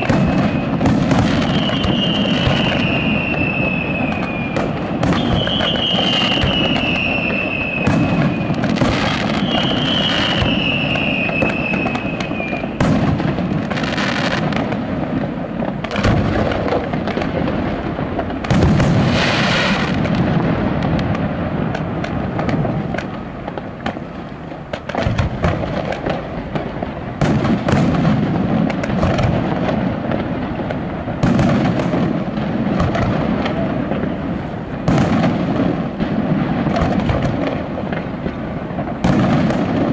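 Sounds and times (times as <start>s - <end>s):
falling firework whistles: 0.0s - 23.9s
firework bursts and crackles: 0.0s - 39.9s.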